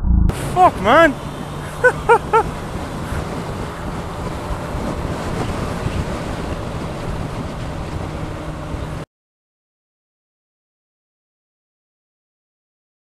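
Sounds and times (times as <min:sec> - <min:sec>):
motorcycle engine cruising: 0:00.0 - 0:09.0
wind buffeting microphone: 0:00.0 - 0:09.0.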